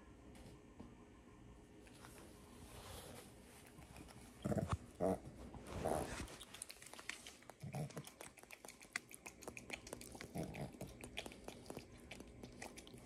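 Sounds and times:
monkey lip clicks and smacks: 6.4s - 13.0s.

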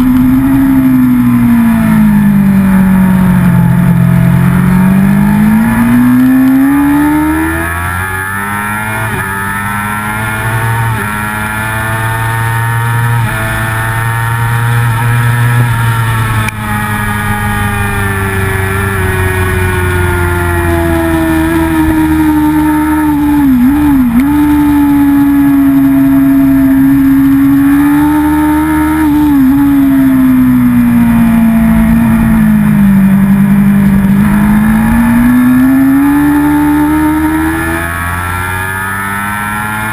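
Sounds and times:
racing motorcycle engine: 0.0s - 39.9s.

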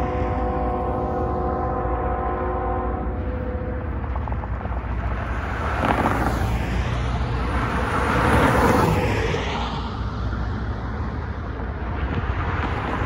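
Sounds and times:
steady low rumble: 0.0s - 13.0s
car passing by: 2.8s - 13.0s.

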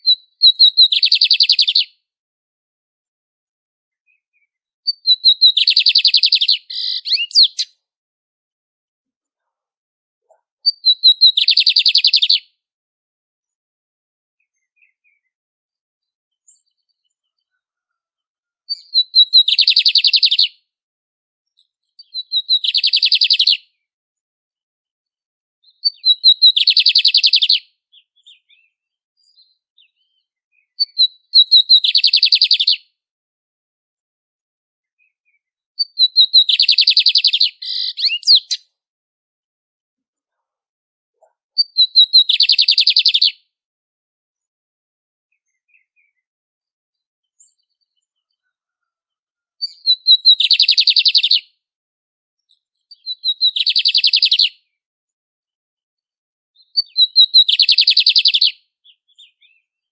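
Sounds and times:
bird singing trills: 0.0s - 1.9s, 4.1s - 7.7s, 10.3s - 12.4s, 18.7s - 20.5s, 21.9s - 23.6s, 25.6s - 32.8s, 35.3s - 38.6s, 41.2s - 43.3s, 49.6s - 51.4s, 52.6s - 54.5s, 56.6s - 59.9s.

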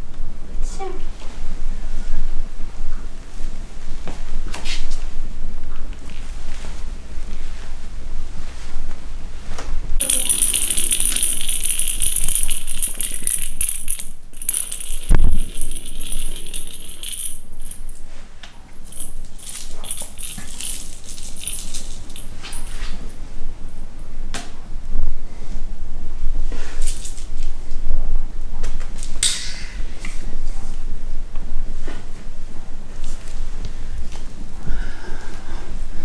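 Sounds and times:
jingling toy ball rattling on wood: 10.0s - 18.0s, 18.8s - 22.8s.

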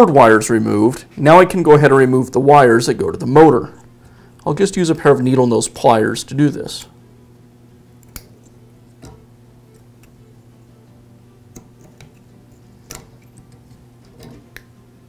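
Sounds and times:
steady low hum: 0.0s - 15.0s
pliers clicking on metal connectors: 8.0s - 10.2s, 11.5s - 14.7s.

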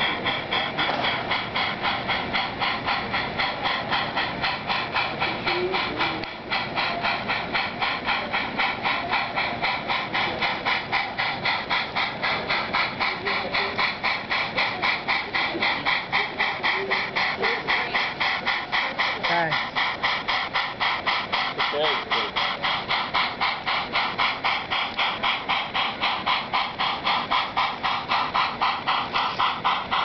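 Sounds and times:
model steam locomotive chuffing: 0.0s - 30.0s.

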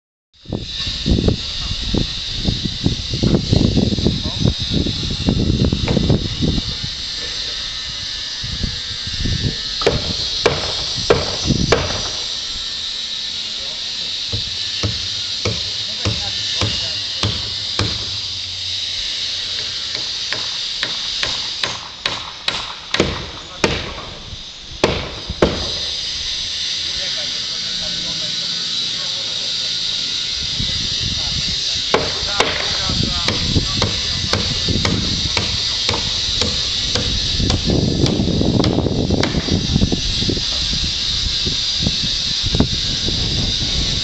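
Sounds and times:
steady hiss: 0.4s - 44.0s
hammering: 9.8s - 12.3s, 14.3s - 18.2s, 19.6s - 24.2s, 24.8s - 25.9s, 31.9s - 39.5s.

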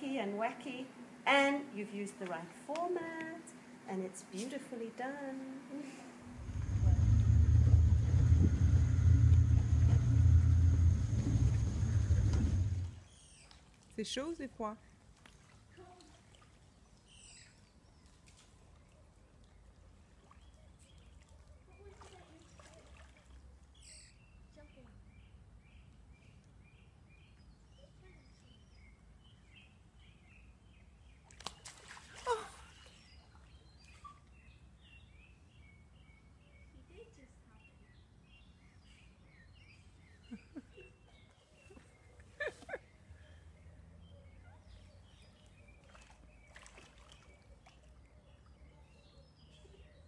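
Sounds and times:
low steady hum: 0.0s - 13.8s
small birds chirping: 6.4s - 14.2s, 16.4s - 19.7s, 23.6s - 31.8s, 32.6s - 50.0s
water splashing in a pool: 6.4s - 14.2s, 15.0s - 23.8s, 31.2s - 34.4s, 45.2s - 48.8s
splash into swimming pool: 31.2s - 34.2s, 45.8s - 47.9s.

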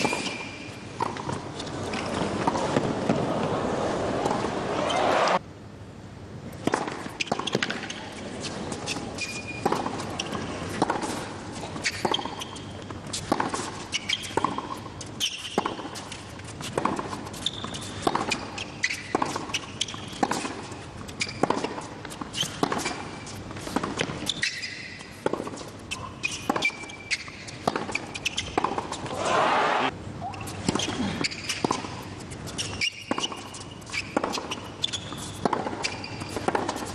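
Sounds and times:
shoe squeaks: 0.0s - 2.6s, 4.7s - 5.4s, 7.0s - 36.9s
racket striking ball: 8.8s - 16.1s, 16.7s - 29.9s, 32.8s - 36.9s.

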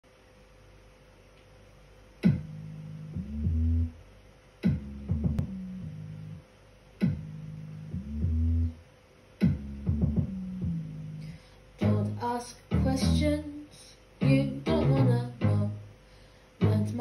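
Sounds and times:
bass and synth notes: 2.2s - 13.5s, 14.2s - 16.0s, 16.6s - 17.0s.

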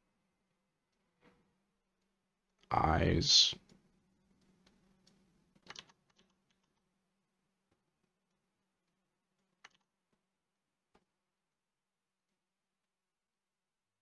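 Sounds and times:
faint computer clicks: 4.4s - 6.9s.

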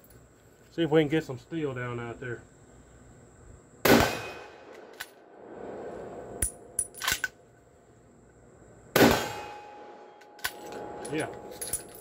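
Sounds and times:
rifle shot with echo: 3.8s - 5.0s, 9.0s - 10.6s
rifle bolt clicking and clacking: 6.8s - 7.3s.

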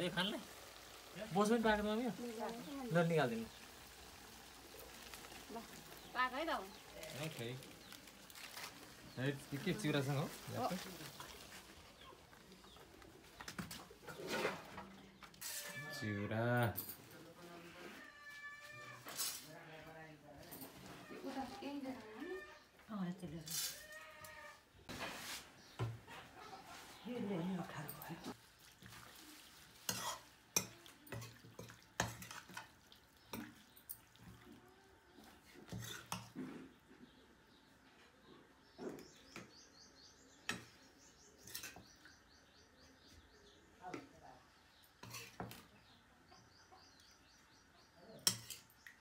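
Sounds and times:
metal spatula scraping pan: 14.0s - 16.1s, 29.8s - 31.4s, 45.0s - 45.5s.

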